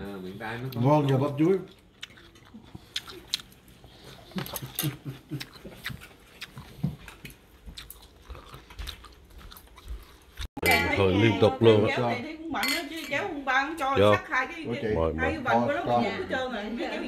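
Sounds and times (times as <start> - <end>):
chewing and biting: 0.7 - 10.5.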